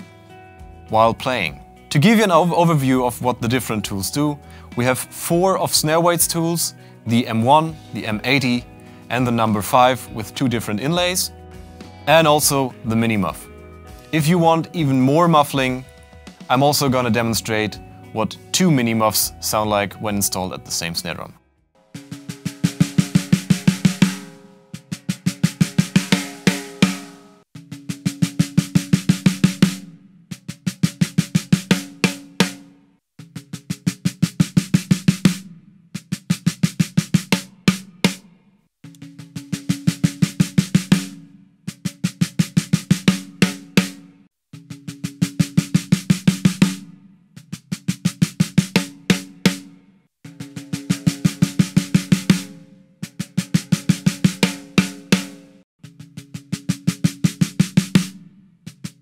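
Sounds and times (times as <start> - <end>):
low drum ring: 21.9 - 58.4
snare drum stick strokes: 22.0 - 27.2, 33.4 - 41.2, 50.9 - 55.5.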